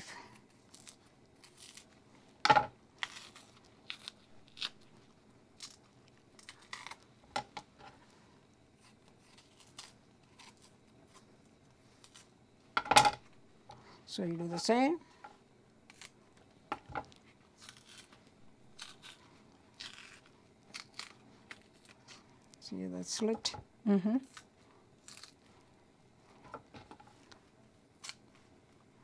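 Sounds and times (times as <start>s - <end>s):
plantain skin tearing: 0.4s - 1.9s, 3.0s - 5.0s, 6.4s - 7.1s, 8.8s - 11.2s, 17.6s - 22.0s, 24.2s - 25.4s.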